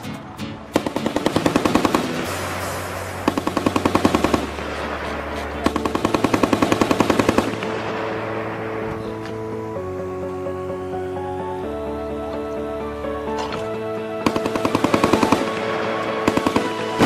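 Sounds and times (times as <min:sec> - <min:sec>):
background music: 0:00.0 - 0:17.0
heavy machine gun bursts: 0:00.7 - 0:09.2, 0:14.2 - 0:17.0.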